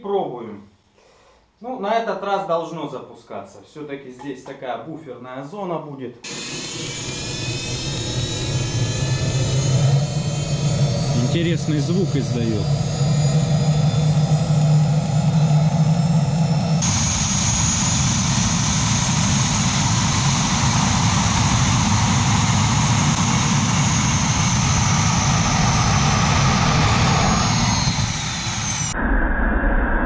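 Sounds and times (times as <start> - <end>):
turbine engine drone: 6.3 - 30.0
turbine roar with high whine: 6.3 - 30.0.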